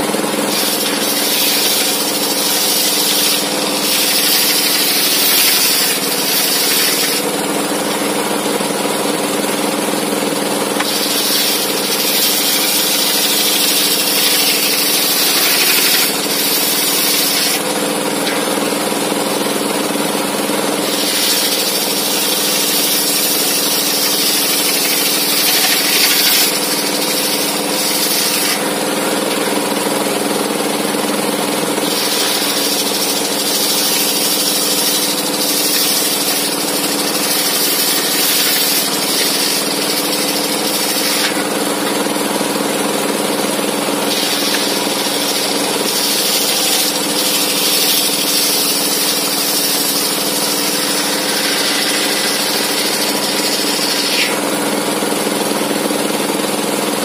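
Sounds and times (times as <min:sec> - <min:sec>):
circular saw ripping timber: 0:00.0 - 0:08.8, 0:10.4 - 0:30.0, 0:31.8 - 0:54.7
saw drive humming: 0:00.0 - 0:55.8
high cutting hiss: 0:00.5 - 0:07.2, 0:10.8 - 0:17.7.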